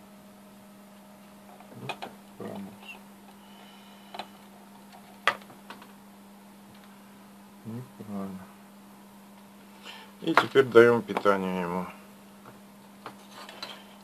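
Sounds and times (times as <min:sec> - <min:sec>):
low electrical hum: 0:00.0 - 0:14.0.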